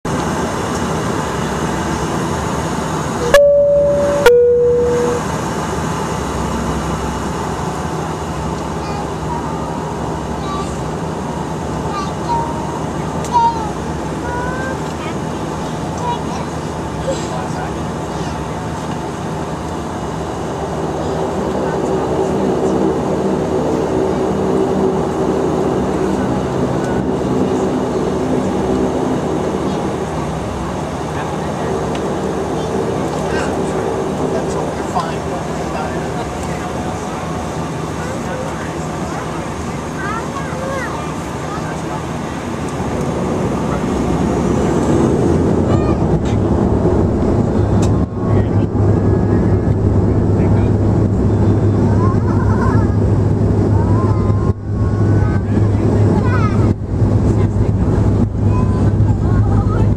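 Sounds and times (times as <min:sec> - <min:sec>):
turboprop engines droning: 0:00.0 - 0:59.9
two-tone cabin chime: 0:03.2 - 0:05.4.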